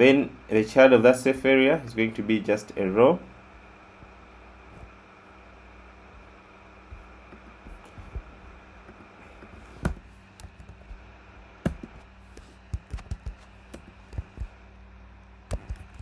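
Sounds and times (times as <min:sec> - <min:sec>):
steady low hum: 0:00.0 - 0:16.0
computer keyboard keystrokes: 0:12.7 - 0:14.5, 0:15.5 - 0:16.0.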